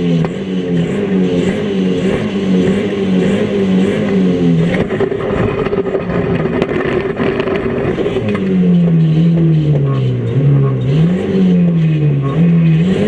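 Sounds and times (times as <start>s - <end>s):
car engine revving: 0.0s - 13.0s
knocks and rattles: 4.6s - 9.9s.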